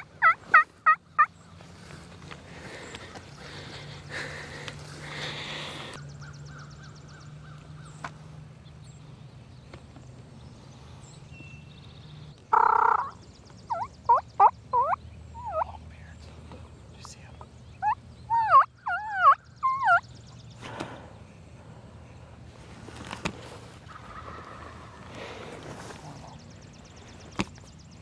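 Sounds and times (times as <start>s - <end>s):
turkey yelping: 0.0s - 1.3s, 12.5s - 15.8s, 17.8s - 20.0s, 23.8s - 25.1s
loud turkey call burst: 12.5s - 13.2s.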